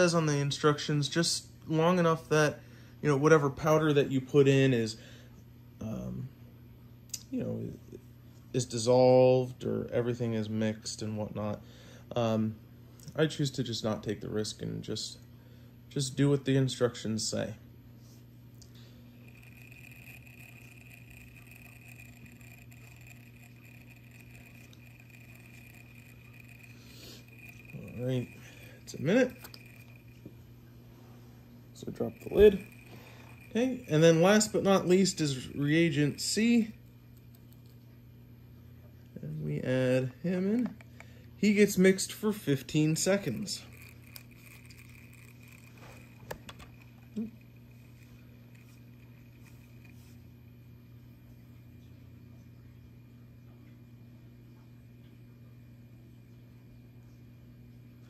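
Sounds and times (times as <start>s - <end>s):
magnetic stirrer humming and whining: 16.0s - 54.4s.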